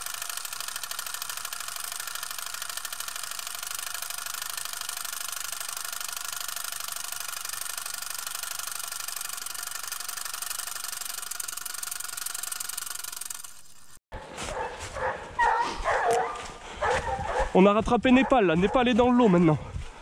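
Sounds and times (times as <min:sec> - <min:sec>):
hounds barking and yelping: 0:14.2 - 0:19.6.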